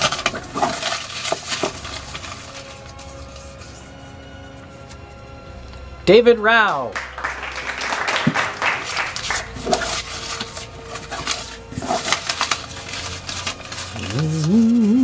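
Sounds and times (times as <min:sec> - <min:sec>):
paper slips rustling: 0:00.0 - 0:04.0, 0:07.0 - 0:15.0.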